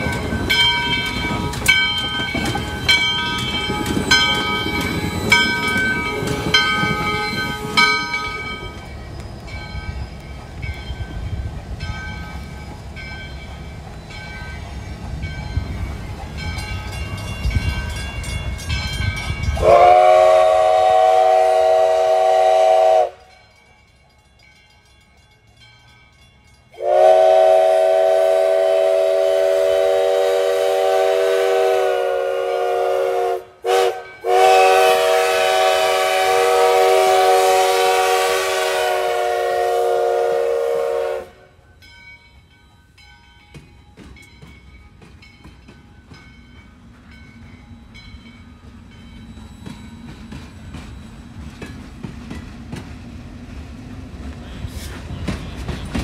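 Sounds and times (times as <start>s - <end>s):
passing train rumble: 0.0s - 56.0s
steam whistle blasts: 19.6s - 23.3s, 26.8s - 41.5s.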